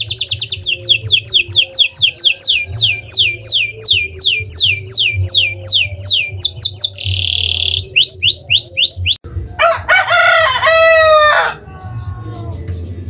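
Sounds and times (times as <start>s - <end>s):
canary singing: 0.0s - 9.7s, 10.6s - 13.0s
rooster crowing: 9.6s - 12.6s.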